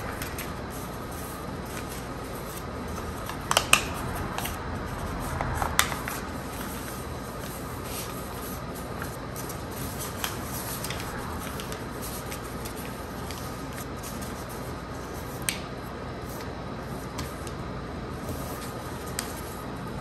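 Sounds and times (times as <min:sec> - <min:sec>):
paper being folded and creased: 0:00.0 - 0:15.6.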